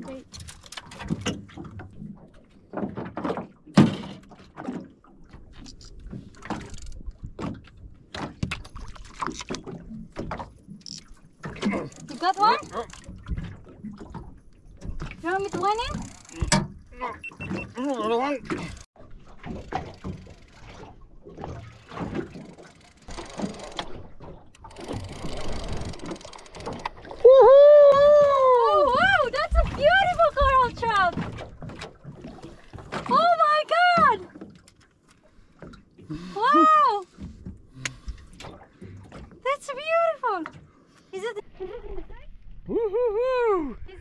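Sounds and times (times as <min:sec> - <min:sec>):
knocks and thuds in metal boat: 0:00.0 - 0:10.8, 0:11.4 - 0:22.6, 0:27.9 - 0:34.6.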